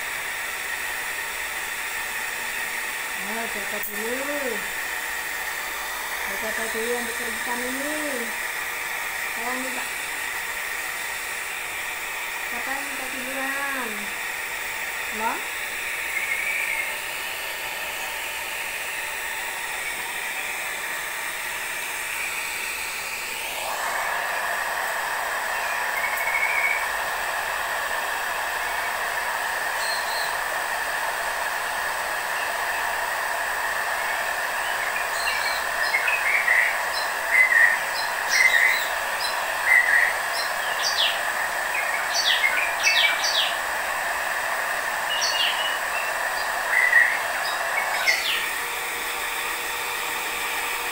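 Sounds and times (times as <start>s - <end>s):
hair dryer blowing: 0.0s - 50.9s
high bird chirps: 25.6s - 26.8s, 29.8s - 30.3s, 41.8s - 43.6s, 45.1s - 45.8s, 46.8s - 48.4s.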